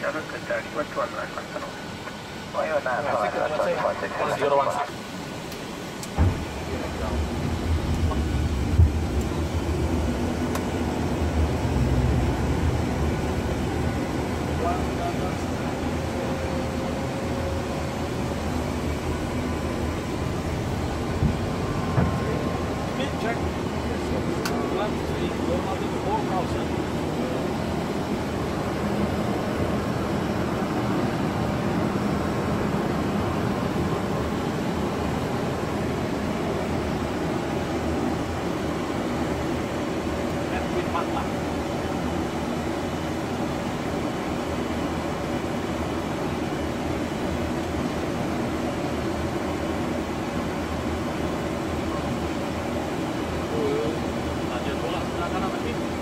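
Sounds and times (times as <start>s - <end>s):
rushing airflow in cockpit: 0.0s - 56.0s
low thumps: 7.7s - 9.2s.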